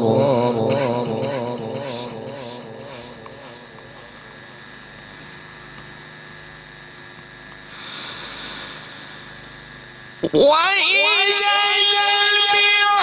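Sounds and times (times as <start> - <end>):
microphone system hum and hiss: 0.0 - 13.0
breath close to microphone: 7.7 - 9.8.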